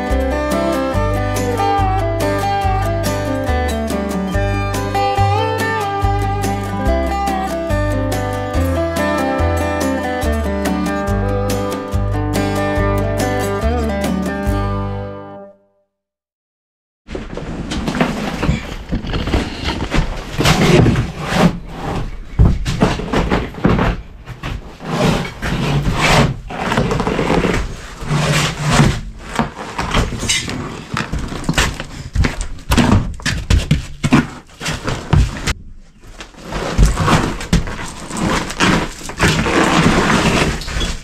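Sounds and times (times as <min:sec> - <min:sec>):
dull thumps: 0:17.1 - 0:41.0
carpet tearing and scraping: 0:17.5 - 0:41.0.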